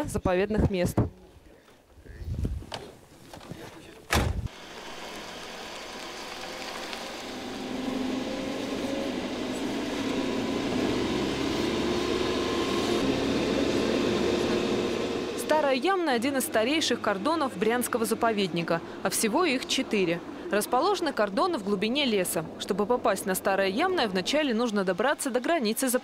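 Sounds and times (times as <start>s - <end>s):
vehicle door slamming: 4.1s - 4.5s
vehicle engine running: 4.5s - 25.2s.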